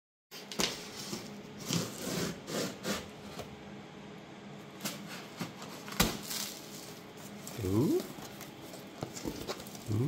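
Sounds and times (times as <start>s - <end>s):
cardboard scraping and rubbing: 0.6s - 3.5s.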